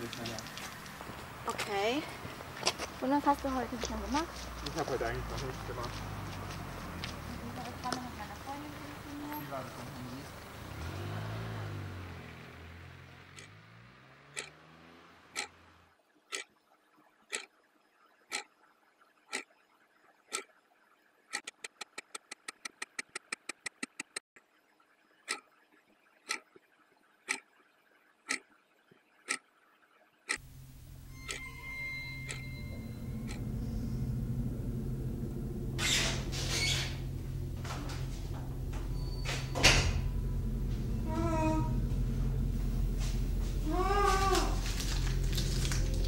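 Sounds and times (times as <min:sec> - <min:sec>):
clock ticking: 0:13.3 - 0:13.6, 0:14.3 - 0:14.7, 0:15.3 - 0:15.6, 0:16.3 - 0:16.6, 0:17.3 - 0:17.6, 0:18.2 - 0:18.6, 0:19.2 - 0:19.6, 0:20.3 - 0:20.6, 0:21.3 - 0:24.2, 0:25.2 - 0:25.6, 0:26.2 - 0:27.6, 0:28.2 - 0:28.6, 0:29.2 - 0:29.5, 0:30.2 - 0:35.3
low hum: 0:24.5 - 0:46.0
low drone: 0:30.4 - 0:46.0.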